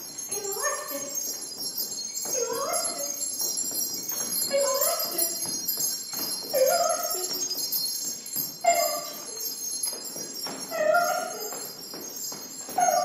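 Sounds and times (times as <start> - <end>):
small metal bells ringing: 0.0 - 13.0.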